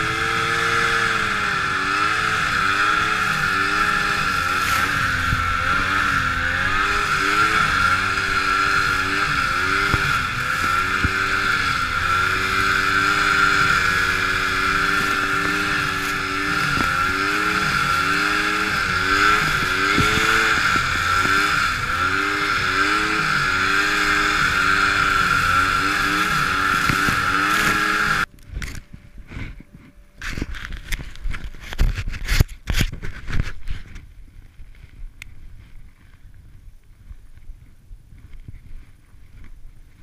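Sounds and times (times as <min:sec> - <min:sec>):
snowmobile engine revving: 0:00.0 - 0:28.8
steady high whir: 0:00.0 - 0:31.7.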